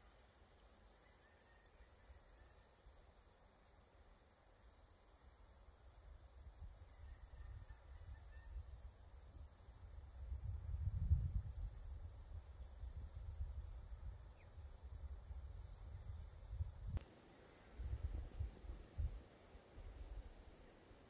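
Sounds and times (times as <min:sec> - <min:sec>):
high-pitched insect chirring: 0:10.9 - 0:16.8.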